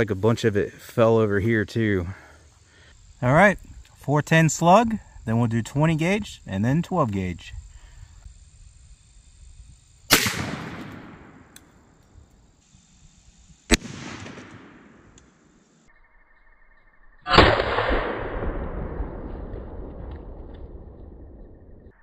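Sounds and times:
shotgun shots echoing: 0:10.1 - 0:11.8, 0:13.7 - 0:15.2, 0:17.3 - 0:20.2.

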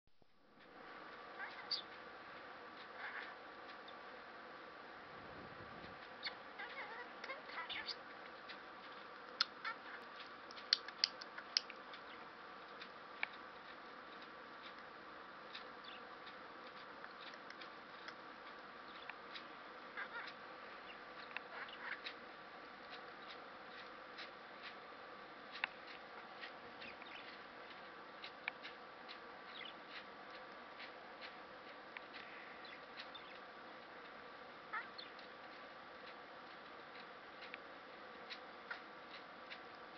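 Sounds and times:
budgerigar clicks and chirps: 0:06.2 - 0:13.4, 0:15.5 - 0:22.2, 0:25.5 - 0:37.6
budgerigar chattering warble: 0:20.0 - 0:22.2.

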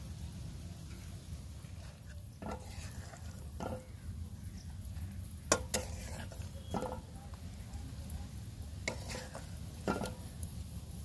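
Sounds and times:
metal spatula scraping iron pot: 0:01.6 - 0:04.2, 0:05.4 - 0:07.4, 0:08.7 - 0:10.5.

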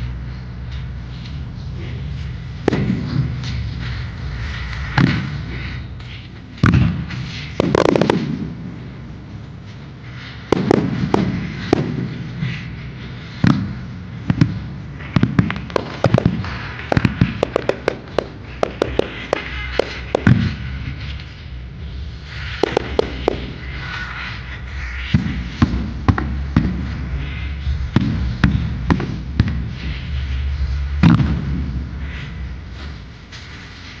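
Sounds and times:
firework shells booming: 0:02.5 - 0:05.9, 0:06.6 - 0:09.0, 0:10.4 - 0:12.7, 0:13.3 - 0:21.2, 0:22.4 - 0:24.1, 0:25.0 - 0:30.2, 0:30.9 - 0:32.5.

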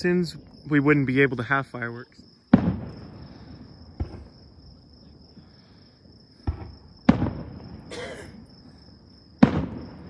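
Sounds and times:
crickets trilling: 0:00.0 - 0:10.0
fireworks bangs: 0:02.4 - 0:05.5, 0:06.3 - 0:10.0.

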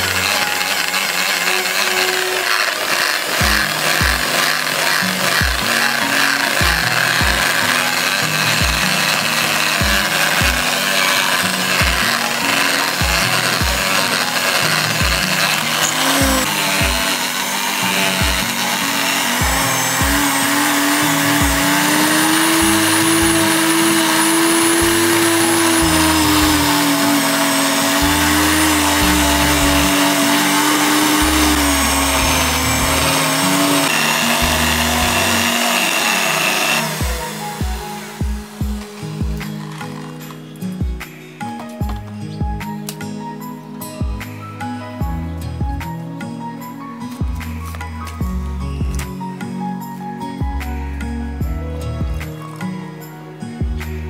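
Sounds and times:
electric drill grinding into ground: 0:00.0 - 0:40.8
background music with beat: 0:03.3 - 0:54.0.

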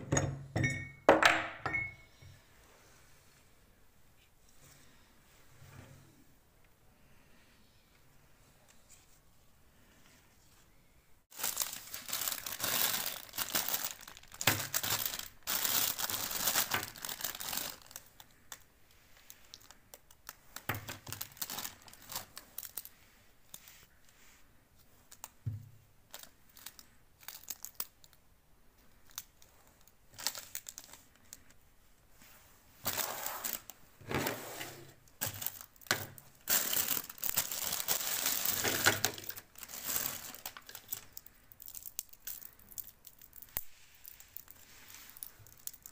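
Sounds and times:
plastic wrappers crinkling: 0:11.3 - 0:23.9, 0:25.0 - 0:25.4, 0:26.0 - 0:28.2, 0:29.0 - 0:31.6, 0:32.8 - 0:33.8, 0:35.0 - 0:45.9.

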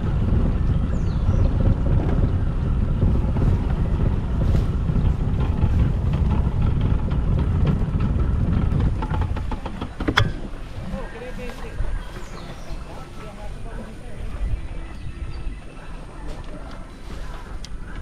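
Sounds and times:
motorboat motor rumbling: 0:00.0 - 0:18.0
wind buffeting microphone: 0:00.0 - 0:18.0.

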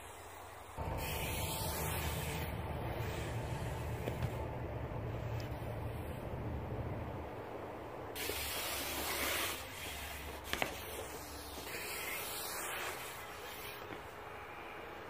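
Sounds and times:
rushing hiss: 0:00.0 - 0:04.1, 0:08.2 - 0:14.8.

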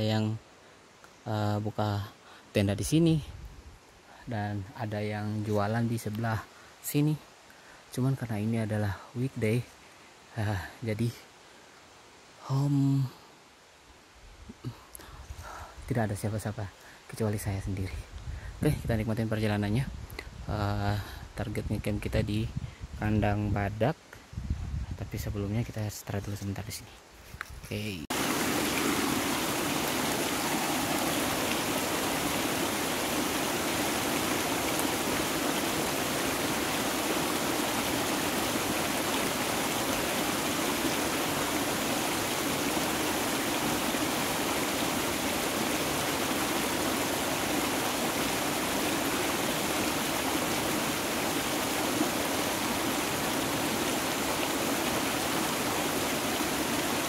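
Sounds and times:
stream water flowing: 0:27.9 - 0:57.0.

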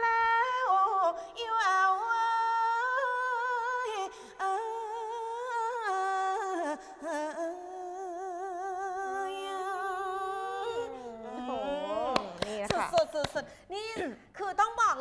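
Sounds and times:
woman singing unaccompanied: 0:00.0 - 0:15.0.

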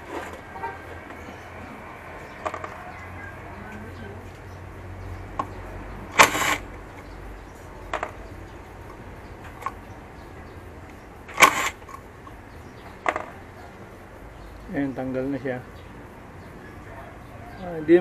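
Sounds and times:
cordless driver whirring: 0:06.1 - 0:06.6, 0:11.3 - 0:11.8.

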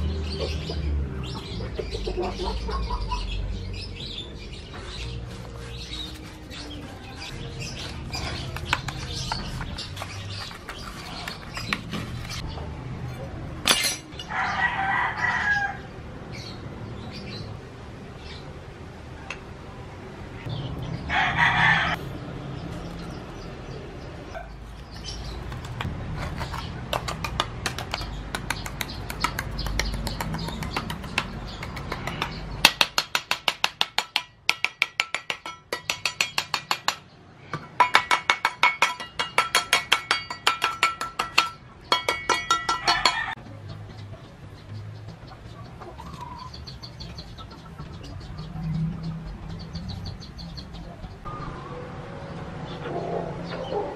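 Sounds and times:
rooster crowing: 0:14.2 - 0:15.9, 0:21.1 - 0:22.0
rapid ringing taps on metal mold: 0:32.6 - 0:37.0, 0:37.6 - 0:43.3.

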